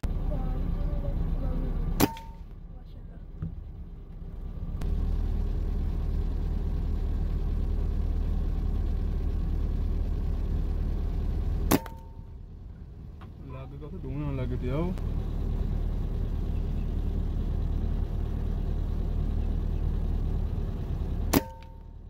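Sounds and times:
steady low rumble: 0.0s - 22.0s
airgun shots: 2.0s - 2.4s, 11.6s - 12.1s, 21.3s - 21.8s.

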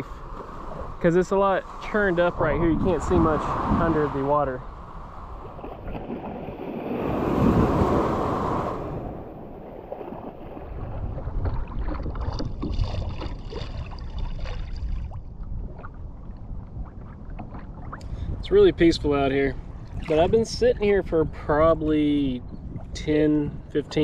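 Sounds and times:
water splashing around kayak: 0.0s - 18.4s, 19.2s - 20.5s
wind on microphone: 0.0s - 24.0s.

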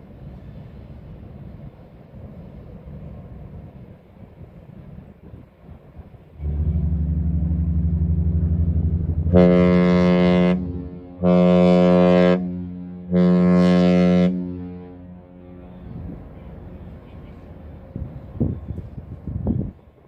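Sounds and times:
higher ship horn blasts: 6.3s - 17.8s
deep ship horn blast: 6.4s - 17.5s.

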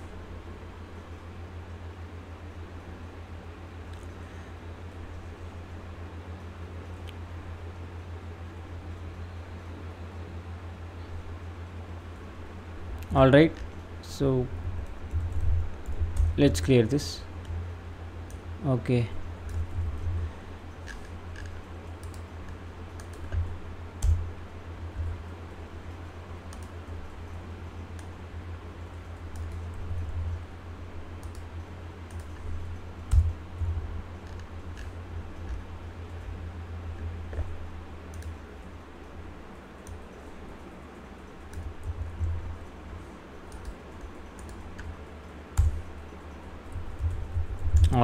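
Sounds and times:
low steady hum: 0.0s - 48.0s
computer keyboard typing: 20.8s - 24.2s, 26.5s - 27.0s, 28.9s - 30.1s, 31.2s - 36.2s, 38.1s - 38.4s, 43.4s - 48.0s.

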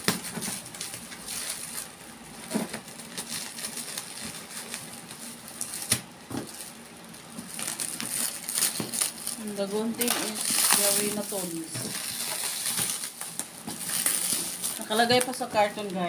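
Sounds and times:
plastic wrapping crinkling: 0.0s - 16.0s.

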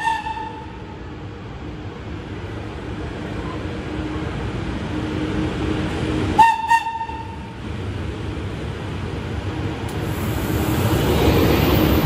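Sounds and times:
locomotive horn blasts: 0.0s - 0.6s, 6.4s - 7.4s
electric locomotive rumble and hum: 0.0s - 12.0s.

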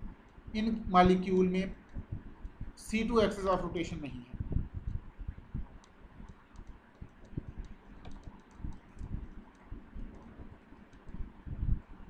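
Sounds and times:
keyboard and mouse clicking: 5.8s - 11.2s.

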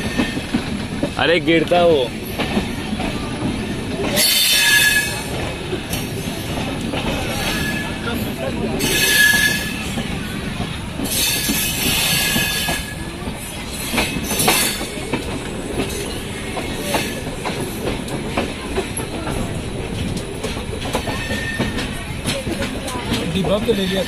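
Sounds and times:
rail joint clicks: 0.0s - 24.0s
train wheels rumbling on rails: 0.0s - 24.0s
high wheel squeal: 4.2s - 5.3s, 8.8s - 10.0s, 11.1s - 13.0s, 21.1s - 21.9s.

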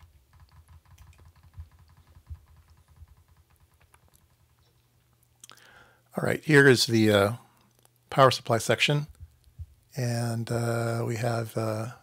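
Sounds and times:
mouse and keyboard clicks: 0.0s - 4.8s
low steady hum: 0.0s - 12.0s.

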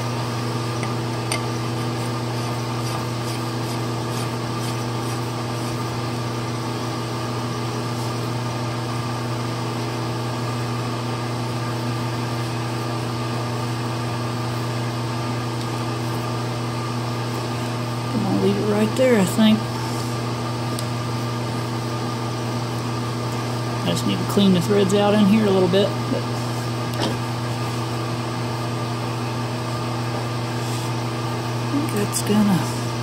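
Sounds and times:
electric machine hum: 0.0s - 33.0s.

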